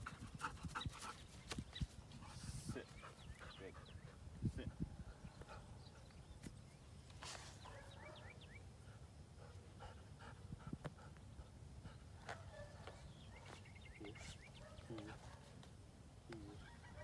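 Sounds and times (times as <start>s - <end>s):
dog panting: 2.2s - 4.3s, 8.8s - 12.7s.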